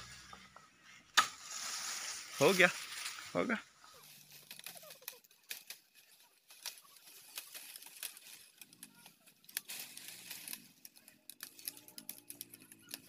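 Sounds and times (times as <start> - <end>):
dry bamboo leaves rustling: 0.0 - 13.0
small crisp clicks and crackles: 2.6 - 13.0.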